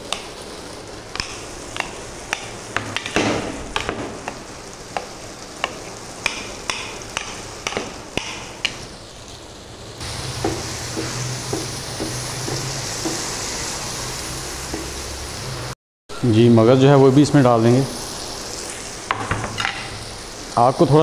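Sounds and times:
wooden spatula stirring: 0:00.0 - 0:08.9, 0:10.0 - 0:13.8
masala sizzling and popping in oil: 0:00.0 - 0:15.8, 0:17.0 - 0:21.0.

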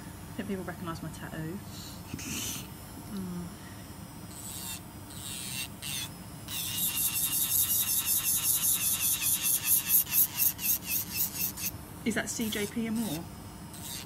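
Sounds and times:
electric nail drill whine: 0:01.9 - 0:03.3, 0:03.9 - 0:14.0
nail filing rasp: 0:02.1 - 0:02.7, 0:04.3 - 0:14.0.

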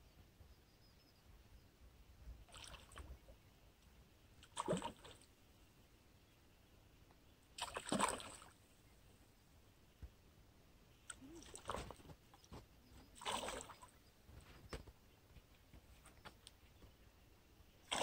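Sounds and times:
objects splashing into a lake: 0:04.4 - 0:05.2, 0:07.6 - 0:08.6, 0:11.1 - 0:12.1, 0:13.2 - 0:13.9.

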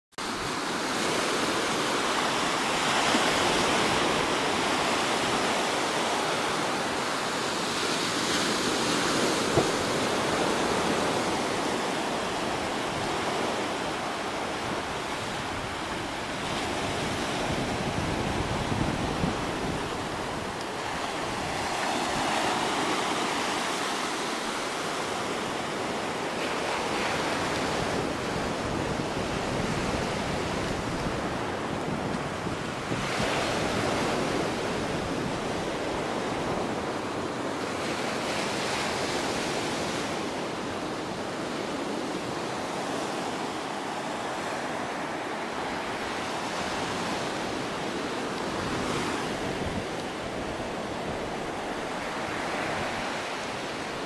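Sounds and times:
sea surf washing on beach: 0:00.2 - 0:54.0.

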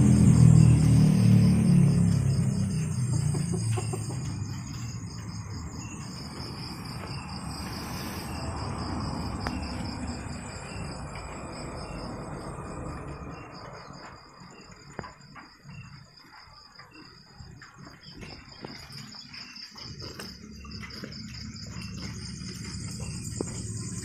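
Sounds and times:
crickets chirping: 0:00.0 - 0:24.0.

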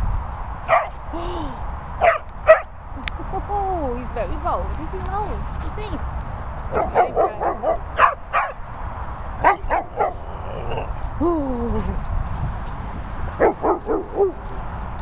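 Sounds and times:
dogs barking and yipping: 0:00.5 - 0:01.1, 0:01.9 - 0:02.9, 0:05.2 - 0:11.2, 0:11.9 - 0:14.7
dog whining: 0:09.4 - 0:11.0.

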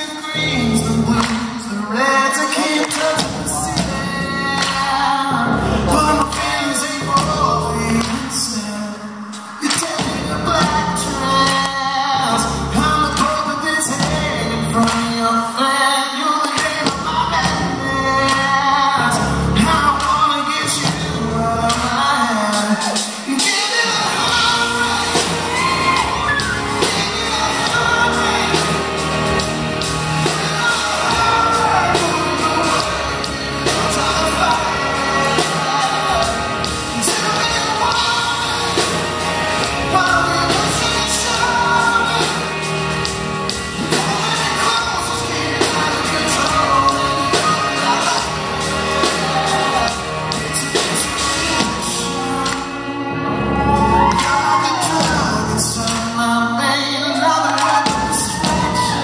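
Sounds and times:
drums: 0:00.0 - 0:59.0
man singing: 0:00.0 - 0:59.0.

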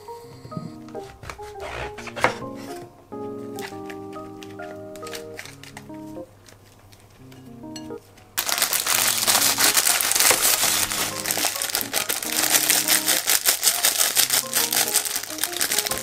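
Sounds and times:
background music: 0:00.0 - 0:06.4, 0:07.2 - 0:16.0
plastic bag crinkling: 0:03.6 - 0:07.2, 0:08.4 - 0:16.0.

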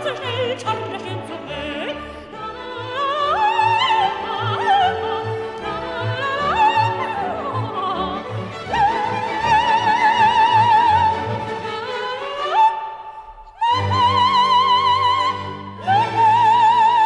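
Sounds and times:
orchestra accompaniment: 0:00.0 - 0:12.8
operatic soprano singing: 0:00.0 - 0:17.0.

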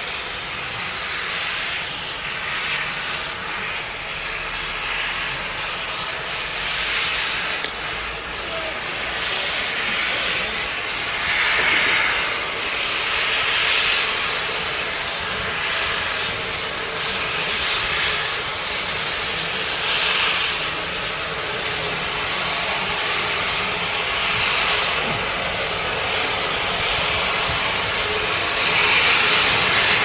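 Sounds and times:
steam locomotive hissing steam: 0:00.0 - 0:30.0.

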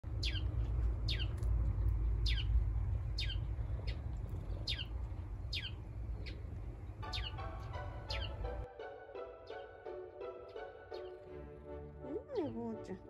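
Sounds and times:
low steady rumble: 0:00.0 - 0:08.7
bird calling: 0:03.2 - 0:08.6.

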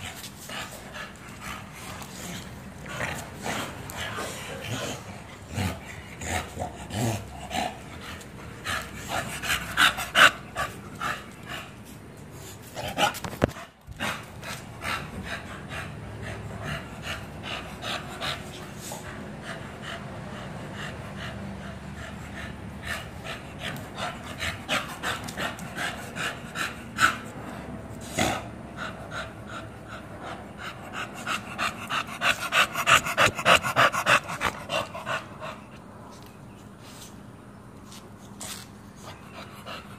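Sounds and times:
dogs panting: 0:00.0 - 0:36.2, 0:38.4 - 0:39.9.

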